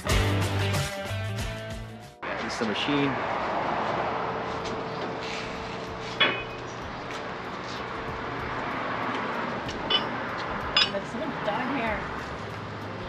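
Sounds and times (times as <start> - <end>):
sharp metallic clank: 6.2 - 6.7, 9.9 - 10.2.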